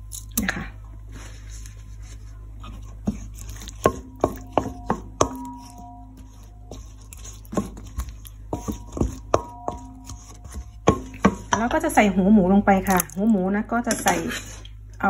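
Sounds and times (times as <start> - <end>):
spatula stirring thick dressing: 1.0 - 12.1
spatula tapping metal bowl: 3.0 - 12.1.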